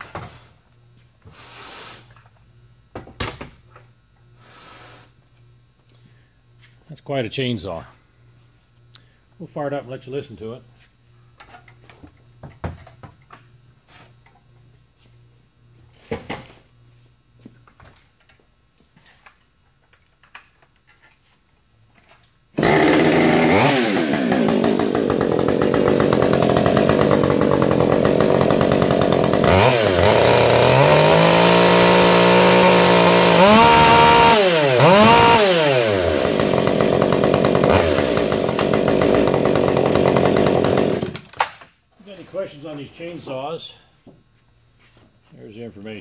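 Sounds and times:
chainsaw revving: 22.6s - 41.2s.

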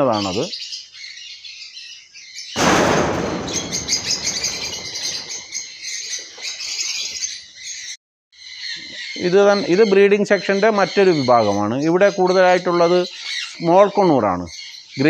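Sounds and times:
birds chirping shrilly: 0.0s - 15.0s
wings flapping: 2.6s - 6.5s.

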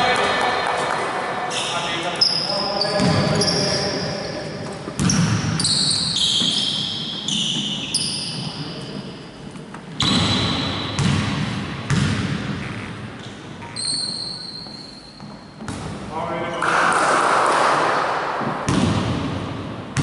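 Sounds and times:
sneaker squeaks on wooden floor: 1.5s - 11.1s, 12.6s - 15.8s.

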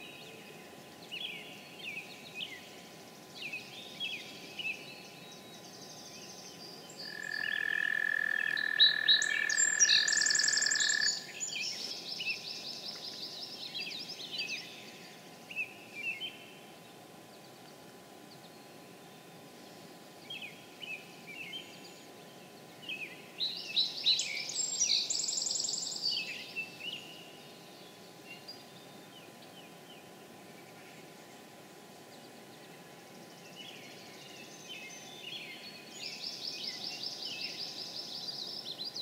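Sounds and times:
songbirds singing: 0.0s - 39.0s
toad trilling: 7.1s - 11.2s.

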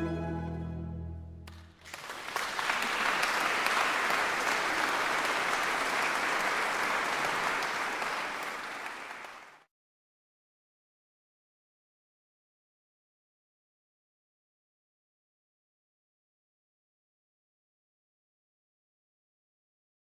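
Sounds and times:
mandolin orchestra chord: 0.0s - 1.4s
audience applauding: 1.5s - 9.7s.

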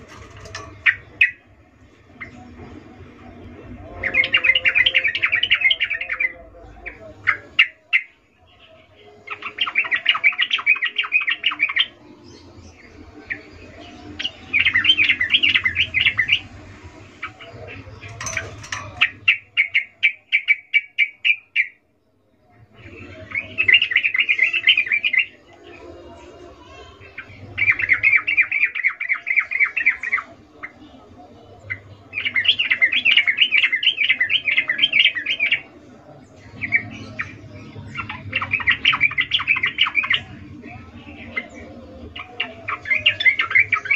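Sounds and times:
bulbul chattering call: 17.2s - 21.7s.

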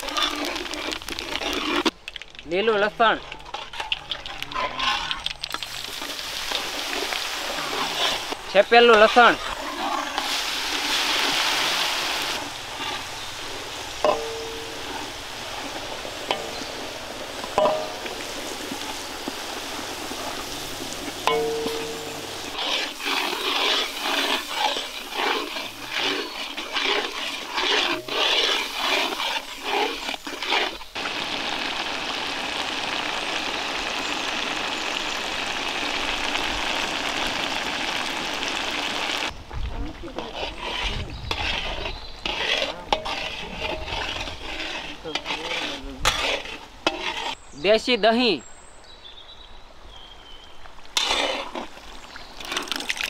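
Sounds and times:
paste sizzling in hot oil: 0.0s - 1.9s, 3.3s - 39.4s, 40.1s - 47.4s, 51.0s - 53.0s
stirring and scraping: 0.0s - 34.5s, 36.2s - 48.0s, 50.9s - 53.0s
masala bubbling: 0.0s - 47.4s, 50.9s - 53.0s
metal spatula clinking on pan: 21.3s - 22.1s.

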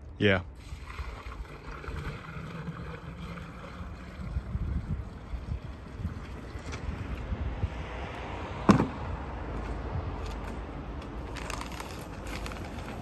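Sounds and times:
wind rumble on microphone: 0.7s - 13.0s
paper bag rustling: 11.2s - 13.0s.

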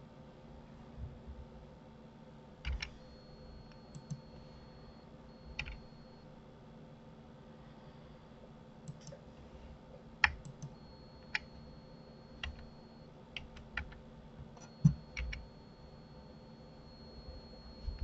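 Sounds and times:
faint steady hum: 0.0s - 18.0s
keyboard keys and mouse clicking: 2.6s - 2.9s, 3.7s - 4.2s, 5.6s - 5.8s, 8.9s - 9.2s, 10.2s - 11.5s, 12.4s - 12.7s, 13.4s - 15.4s.

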